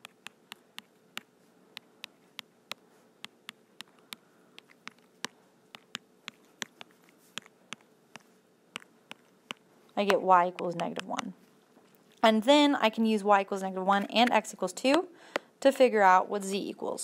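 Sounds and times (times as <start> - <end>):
stylus tapping on screen: 0.0 - 11.4
faint steady hum: 0.0 - 17.0.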